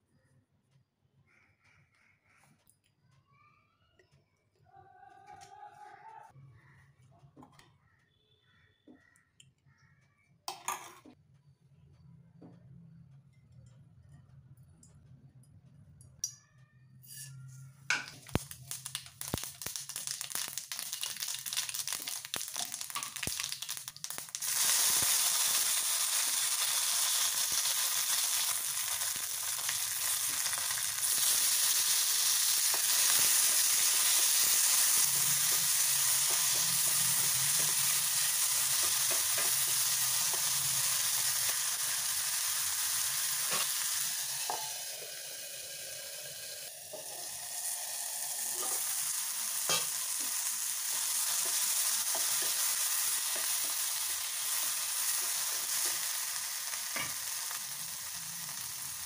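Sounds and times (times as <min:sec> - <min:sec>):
oil sizzling: 0:17.9 - 0:59.0
seeds crackling in hot oil: 0:17.9 - 0:59.0.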